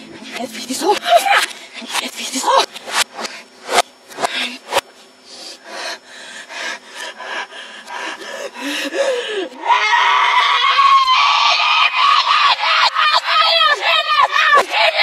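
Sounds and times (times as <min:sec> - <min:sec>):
low wavering vocal sounds: 0:00.0 - 0:03.3
boy screaming: 0:09.6 - 0:15.0.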